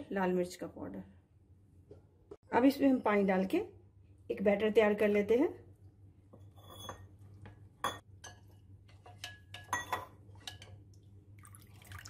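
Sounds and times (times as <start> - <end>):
spoon scraping ceramic plate: 6.4 - 7.2, 7.8 - 10.8.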